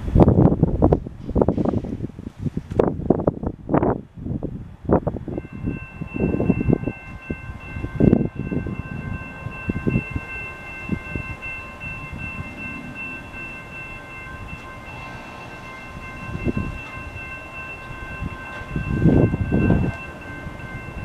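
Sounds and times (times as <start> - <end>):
railroad crossing bell ringing: 5.2 - 21.0.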